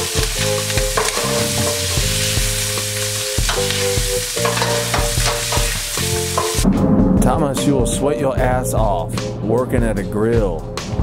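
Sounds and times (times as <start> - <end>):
metal spoon scraping a pan: 0.0 - 2.4, 3.4 - 6.6
meat sizzling in hot fat: 0.0 - 6.6.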